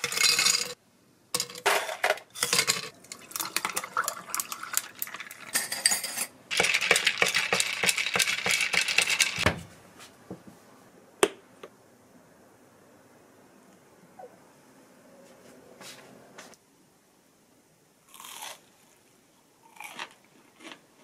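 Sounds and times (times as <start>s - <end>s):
ice crackling and clinking: 0.0s - 0.8s, 2.4s - 9.4s
drink pouring over ice: 3.1s - 5.6s.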